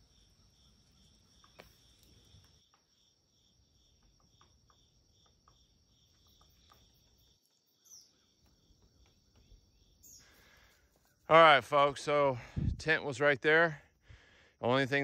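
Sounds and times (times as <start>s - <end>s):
crickets chirping: 0.0s - 15.0s
high insect trill: 0.0s - 15.0s
falling bird chirp: 6.2s - 11.3s.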